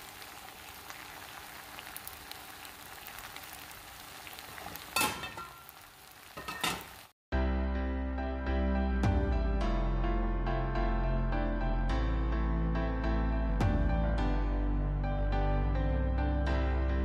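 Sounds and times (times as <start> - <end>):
chicken sizzling in a pan: 0.0 - 7.2
music: 7.3 - 17.0.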